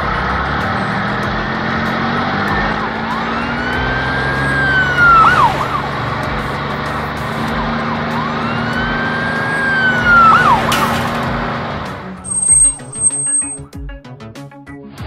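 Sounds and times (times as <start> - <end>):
low engine hum: 0.0 - 13.7
cartoon police siren wailing: 2.4 - 11.0, 12.3 - 13.6
sharp bang: 10.4 - 13.6.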